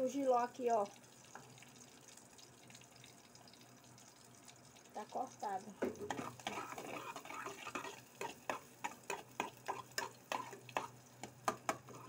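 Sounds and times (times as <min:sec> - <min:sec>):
food sauteing in oil: 0:00.0 - 0:12.0
spoon scraping and tapping pot: 0:05.8 - 0:12.0.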